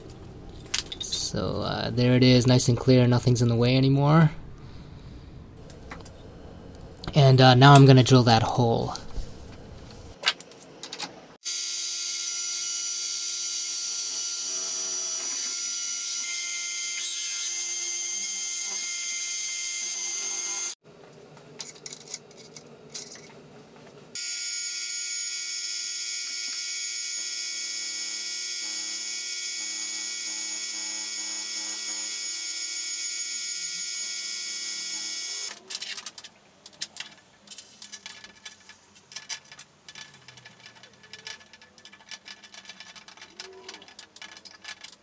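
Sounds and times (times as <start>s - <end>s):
milling machine motor whine: 11.5s - 20.8s, 24.2s - 35.5s.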